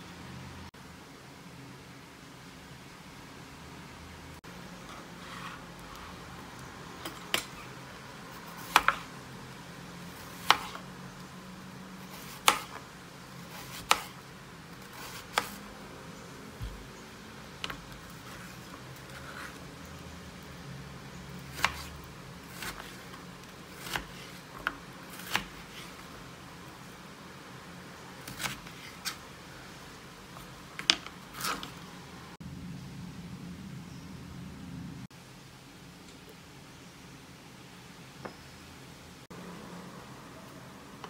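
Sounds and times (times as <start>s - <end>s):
knife slicing through gourd: 21.5s - 24.5s, 25.1s - 26.0s, 28.2s - 29.2s.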